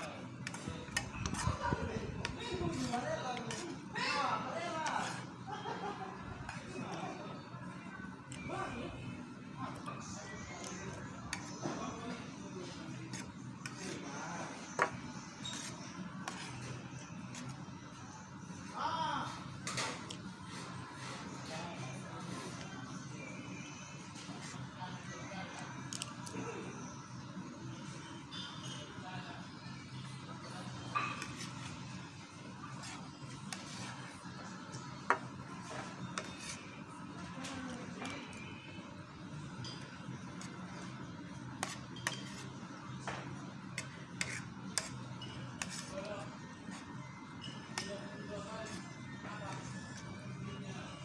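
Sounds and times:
low background hum: 0.0 - 51.0
metal spoon scraping a plate: 2.6 - 3.8, 4.8 - 5.3, 14.7 - 17.6, 35.9 - 36.8, 41.5 - 42.6, 43.8 - 48.9.

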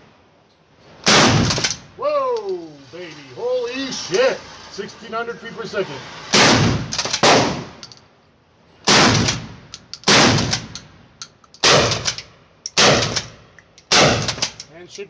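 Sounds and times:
shotgun shots echoing: 1.0 - 1.8, 6.3 - 7.7, 8.9 - 10.7, 11.6 - 12.2, 12.8 - 14.6.

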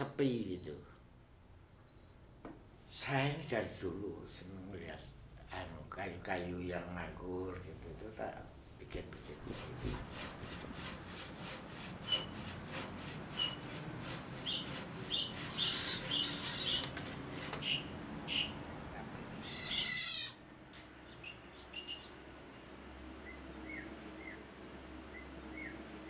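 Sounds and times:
saw cutting through log: 9.2 - 17.7
birds chirping: 14.4 - 26.0.

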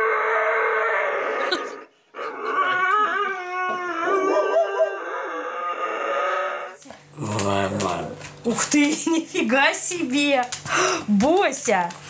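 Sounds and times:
dog howling: 0.0 - 8.0.

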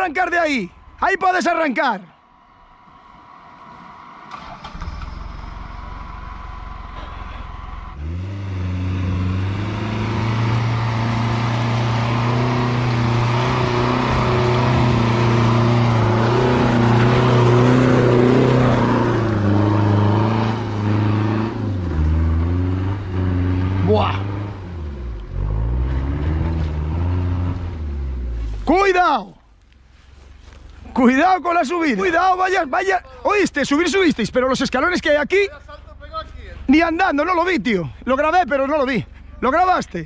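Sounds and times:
off-road vehicle engine revving: 2.6 - 29.1.

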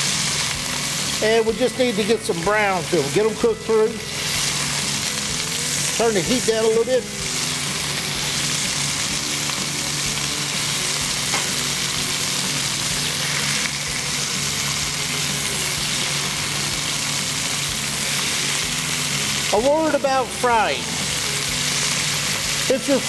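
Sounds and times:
chicken sizzling in hot oil: 0.0 - 23.0.

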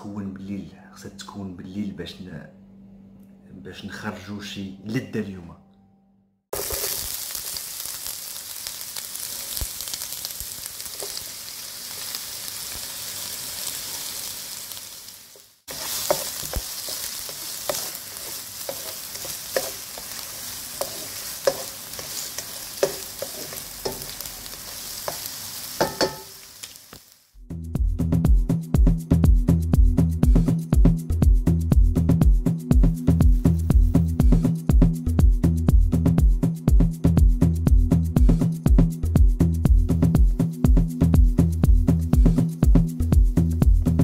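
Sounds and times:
onion sizzling in oil: 6.5 - 27.4.

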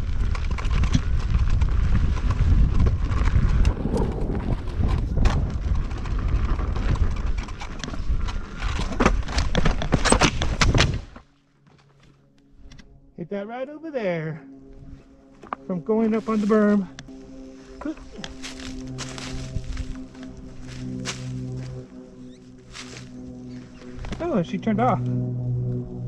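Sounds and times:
wind buffeting microphone: 0.0 - 11.1, 18.1 - 22.4.

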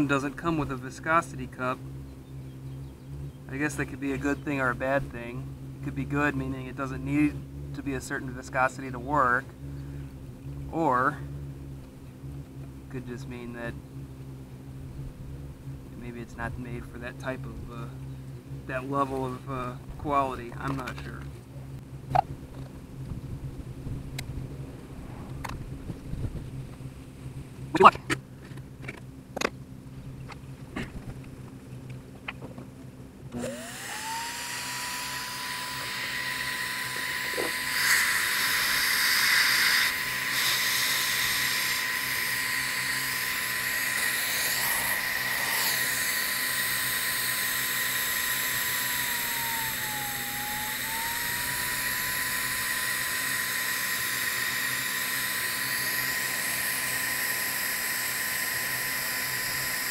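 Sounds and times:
paint sprayer turbine whine: 0.0 - 59.9
rushing hiss of spraying air: 40.3 - 47.7.

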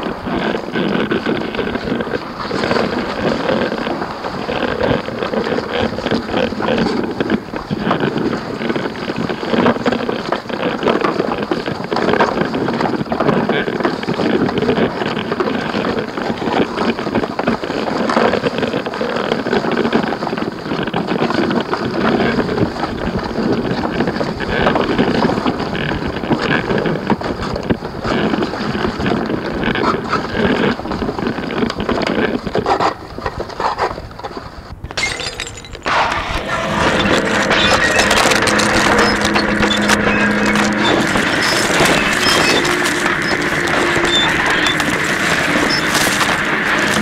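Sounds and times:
harsh churning noise: 0.0 - 32.6, 35.0 - 47.0
steady low hum: 35.0 - 47.0.

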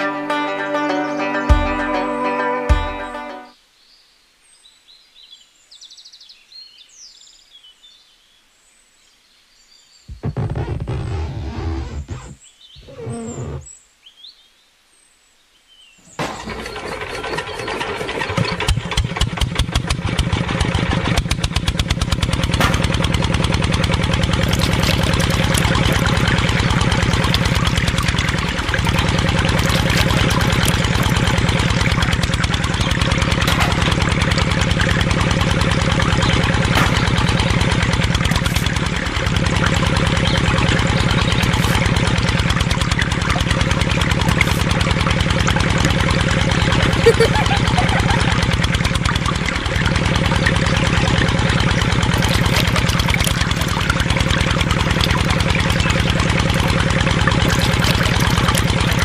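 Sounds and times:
small engine running: 10.1 - 13.6, 16.2 - 59.0.

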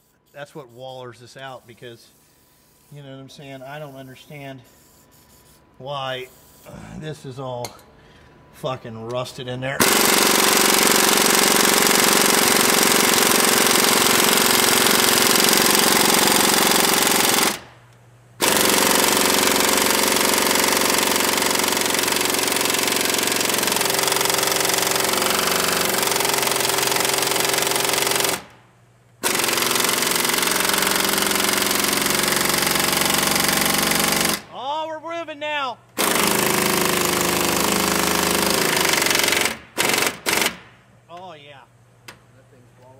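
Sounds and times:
pneumatic air hammer rattling: 9.8 - 17.7, 18.4 - 28.6, 29.2 - 34.5, 36.0 - 40.7.

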